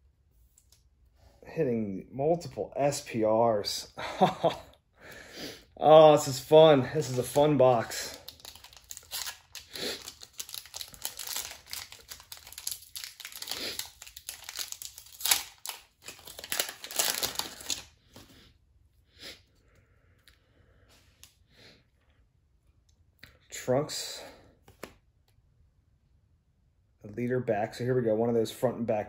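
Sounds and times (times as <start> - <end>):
foil wrapper tearing and crinkling: 7.0 - 17.9.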